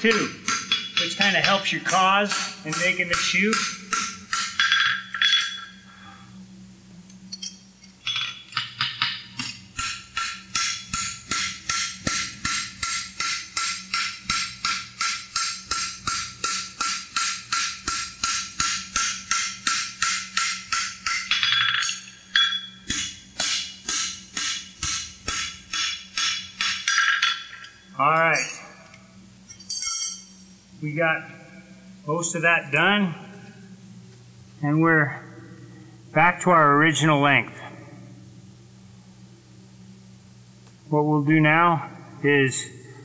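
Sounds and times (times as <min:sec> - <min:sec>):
hammer ringing on anvil: 0:00.0 - 0:05.8, 0:08.1 - 0:28.7
low steady hum: 0:00.0 - 0:43.0.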